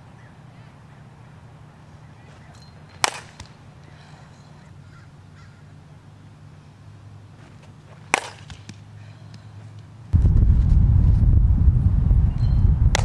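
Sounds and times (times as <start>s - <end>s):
bat striking softball: 2.3s - 3.7s, 7.9s - 9.4s, 12.4s - 13.0s.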